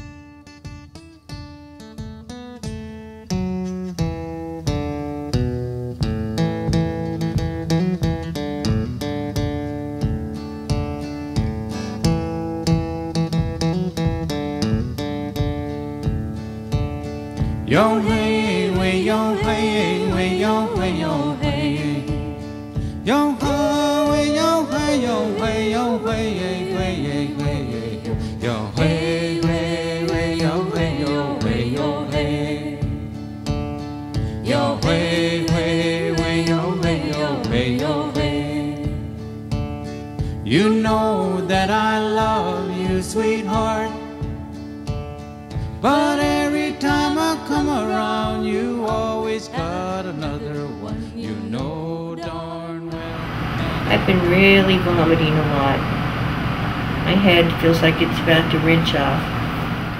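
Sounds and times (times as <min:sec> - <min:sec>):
acoustic guitar strumming chords: 0:00.0 - 0:51.0, 0:52.9 - 0:59.9
song with singing voice: 0:17.6 - 0:33.3, 0:34.2 - 0:39.2, 0:40.4 - 0:44.3, 0:45.8 - 0:59.9.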